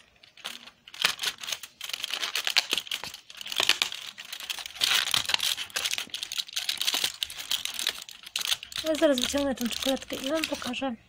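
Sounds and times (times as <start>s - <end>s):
cardboard tearing and crinkling: 0.0s - 10.8s.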